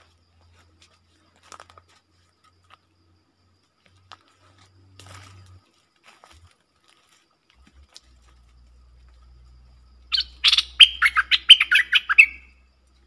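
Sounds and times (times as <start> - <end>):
crackles and rustles: 0.0 - 10.0
steady low hum: 7.6 - 11.5.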